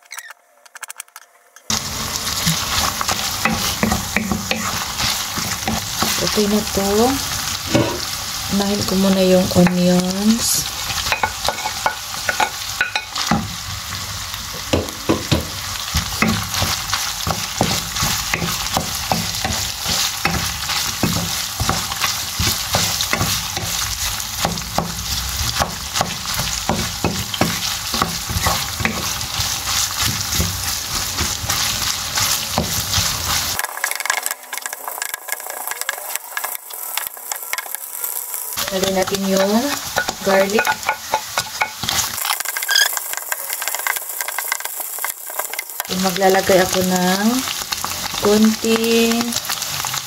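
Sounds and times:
meat and onions sizzling: 1.7s - 50.0s
wooden spoon scraping a pan: 7.6s - 8.2s.

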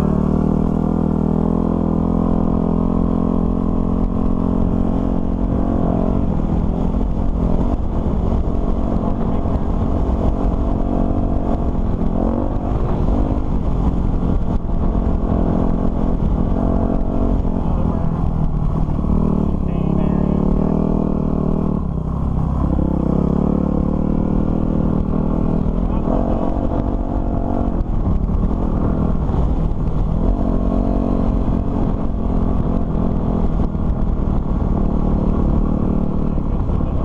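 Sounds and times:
dirt bike engine revving: 18.8s - 33.7s.

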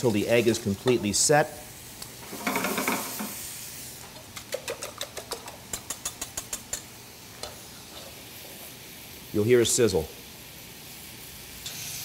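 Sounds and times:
faint frying sizzle: 0.0s - 12.0s
whisk clicking against metal bowl: 4.2s - 6.9s.

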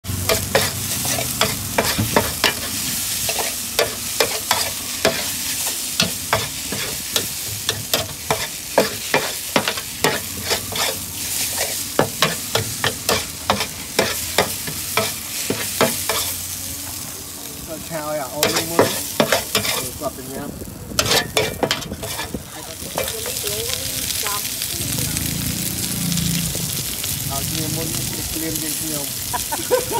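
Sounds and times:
food sizzling: 0.0s - 29.9s
metal spatula scraping a pan: 0.3s - 16.4s, 18.4s - 20.0s, 21.0s - 23.5s.

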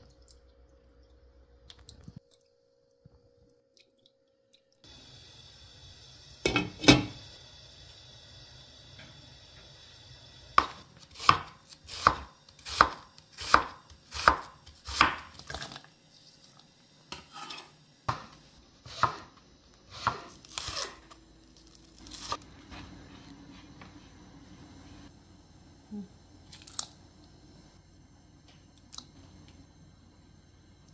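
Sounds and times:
knife chopping on cutting board: 10.6s - 15.3s, 18.9s - 19.3s, 20.0s - 20.3s.

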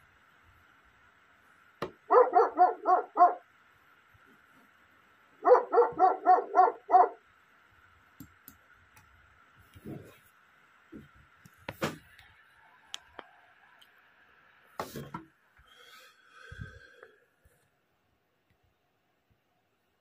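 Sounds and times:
dog barking: 2.1s - 3.5s, 5.4s - 7.2s.

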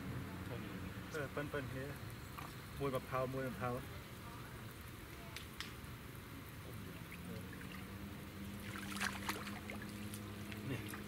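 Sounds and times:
fish splashing at water surface: 6.9s - 11.0s.

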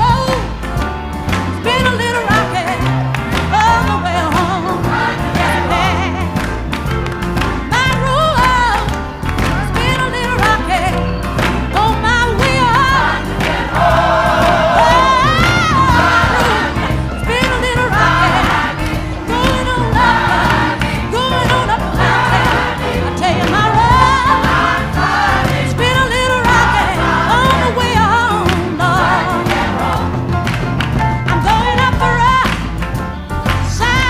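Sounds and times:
steady bass line: 0.0s - 34.0s
singing voices with vibrato: 11.8s - 30.1s.

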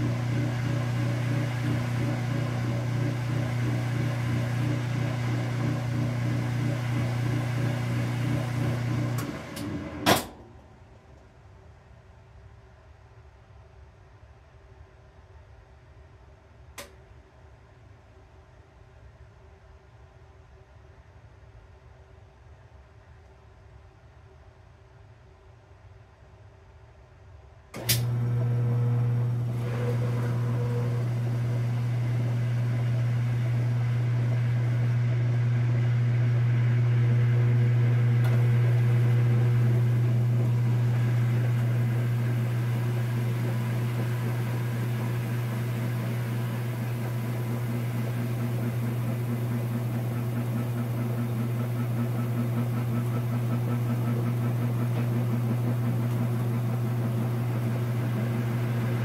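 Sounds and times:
washing machine motor humming: 0.0s - 10.6s, 27.8s - 59.0s.

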